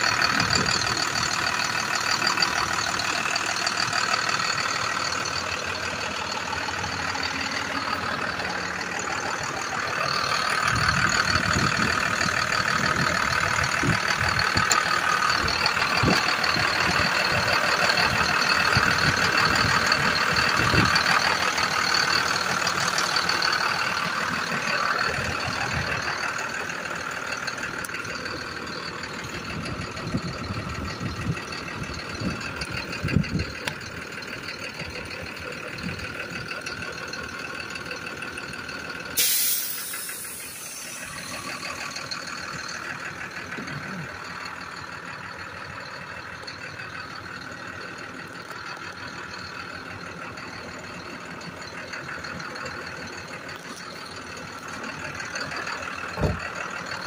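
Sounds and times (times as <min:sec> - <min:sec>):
diesel truck engine idling: 0:00.0 - 0:57.0
air hiss burst: 0:39.2 - 0:41.0.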